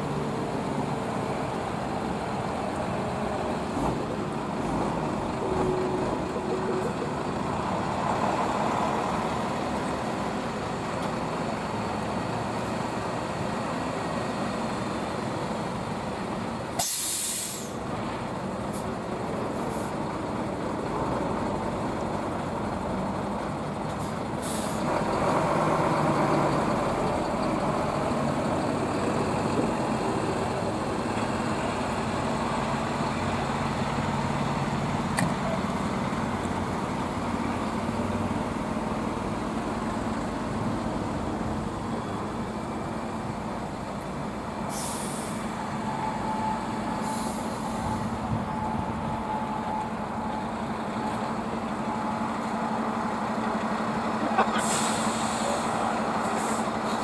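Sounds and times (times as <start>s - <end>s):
trucks driving past: 0.0s - 57.0s
air-brake hisses: 16.8s - 17.8s, 44.7s - 45.5s, 54.6s - 57.0s.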